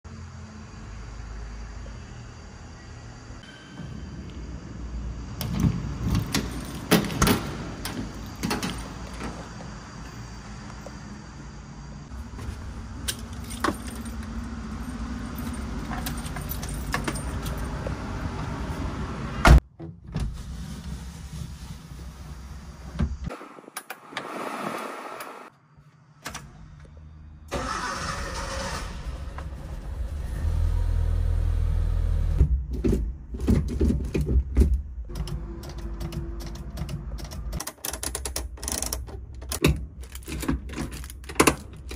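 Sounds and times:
key rattling in door lock: 6.0s - 9.3s, 15.4s - 17.8s
engine starting and idling: 27.5s - 32.4s.

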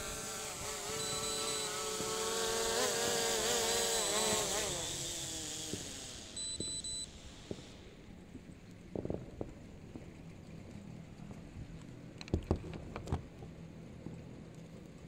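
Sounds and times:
drone propellers buzzing: 0.0s - 8.2s.

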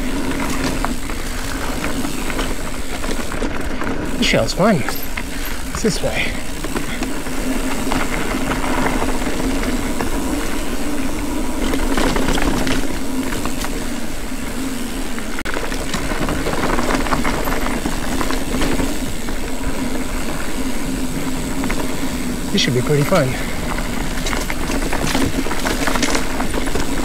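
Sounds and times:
bike clattering over bumps: 0.0s - 27.0s
bike tyres rolling on dirt: 0.0s - 27.0s.

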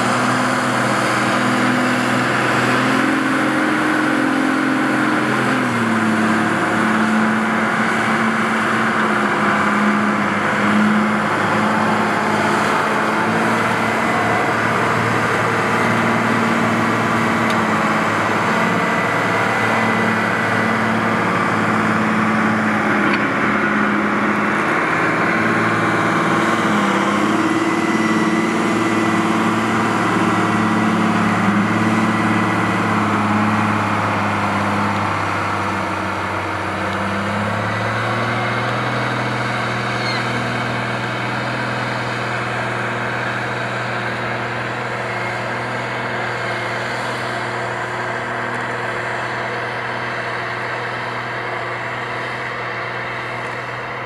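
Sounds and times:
tractor diesel engine under load: 0.0s - 54.0s.

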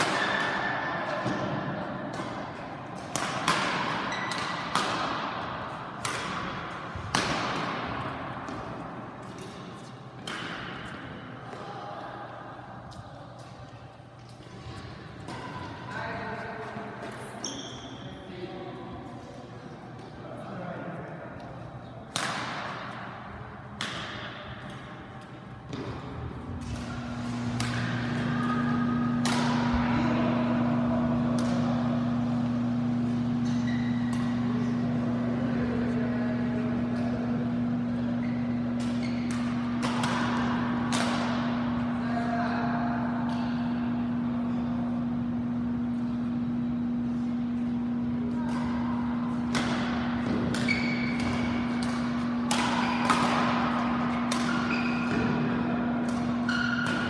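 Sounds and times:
rackets smacking shuttlecock: 0.0s - 11.7s, 22.0s - 35.4s, 36.8s - 41.9s, 48.4s - 57.0s
low hum: 20.9s - 57.0s.

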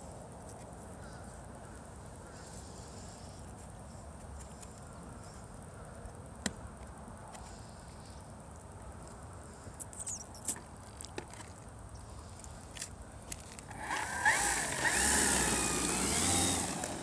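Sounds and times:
outdoor background hiss: 0.0s - 17.0s
faint bird chirps: 9.8s - 10.6s.

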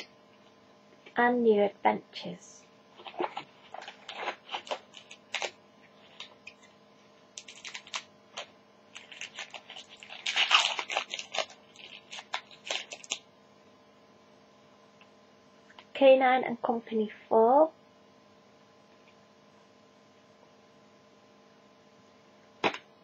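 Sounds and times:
foil wrapper crinkling and tearing: 3.0s - 6.7s, 7.4s - 13.2s.

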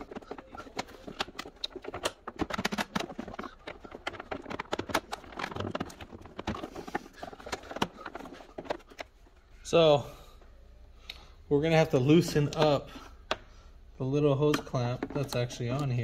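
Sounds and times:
plastic housing clicking and knocking: 0.0s - 9.2s, 14.4s - 16.0s.

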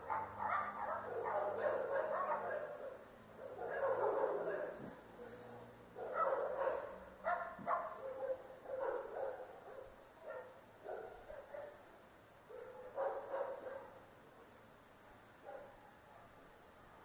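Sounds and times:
dog barking: 0.0s - 5.4s, 6.0s - 11.8s, 12.5s - 14.1s, 15.4s - 16.0s.

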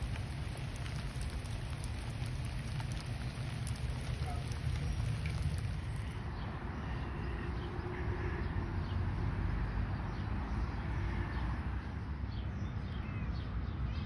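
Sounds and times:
wind buffeting microphone: 0.0s - 6.5s
birds chirping faintly: 0.0s - 7.8s.

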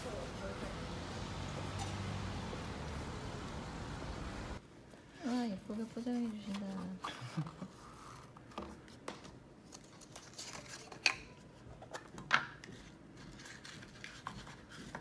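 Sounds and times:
paper rustling and crinkling: 9.6s - 11.1s.

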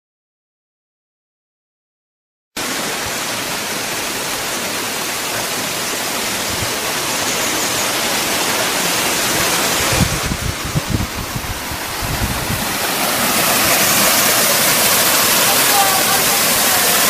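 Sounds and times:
running water rushing: 2.6s - 17.0s
low bumps: 9.3s - 14.0s.

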